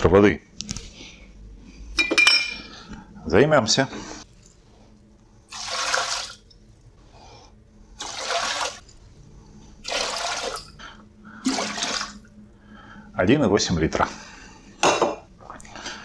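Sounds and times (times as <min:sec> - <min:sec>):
water pouring into steel boiler: 0:05.5 - 0:06.5, 0:08.0 - 0:08.8, 0:09.8 - 0:10.7, 0:11.4 - 0:12.3.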